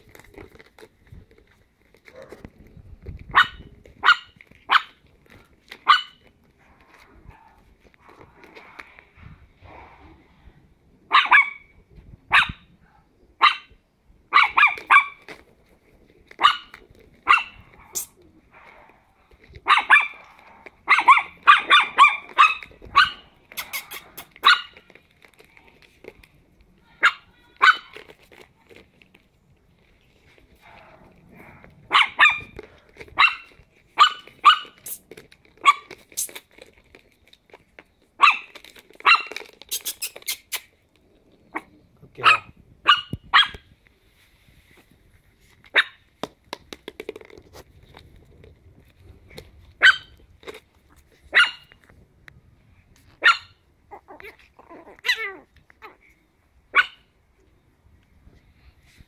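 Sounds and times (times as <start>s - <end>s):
puppies yapping: 19.6s - 25.0s, 30.6s - 35.0s, 53.2s - 57.0s.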